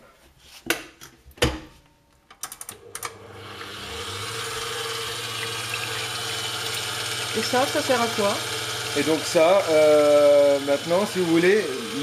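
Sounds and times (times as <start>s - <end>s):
stand mixer motor whirring: 2.8s - 12.0s.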